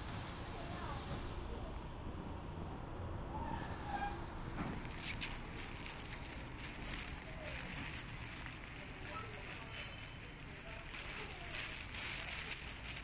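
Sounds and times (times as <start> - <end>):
cats crunching dry food: 4.8 - 13.0.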